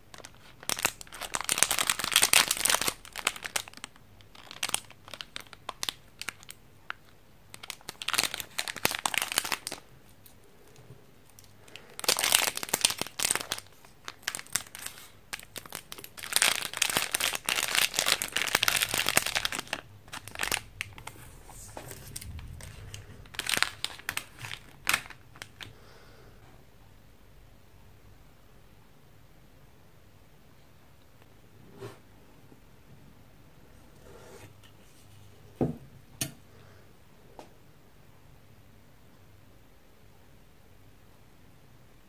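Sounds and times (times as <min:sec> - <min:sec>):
plastic wrapper crackling: 0:00.0 - 0:10.4, 0:11.3 - 0:25.8.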